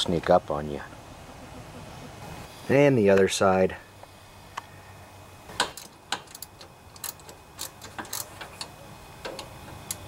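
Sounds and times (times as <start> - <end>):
metal clicks and clinks: 5.6 - 10.0.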